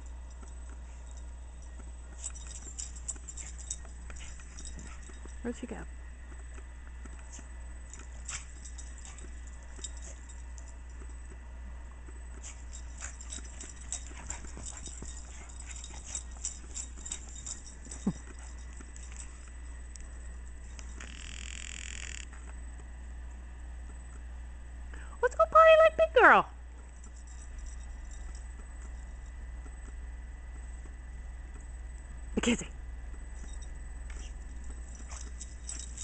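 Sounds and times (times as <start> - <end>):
low camcorder hum: 0.0 - 24.9, 26.6 - 36.0
sharp squeak: 21.0 - 22.2.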